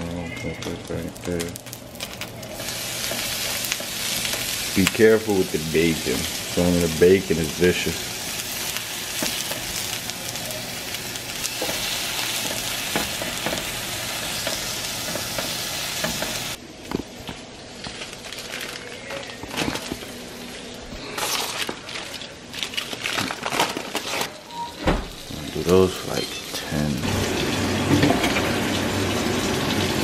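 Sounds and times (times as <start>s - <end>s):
aluminium foil crinkling: 0.2s - 13.8s, 16.9s - 24.4s
bacon and sausages sizzling: 0.4s - 16.6s, 25.0s - 30.0s.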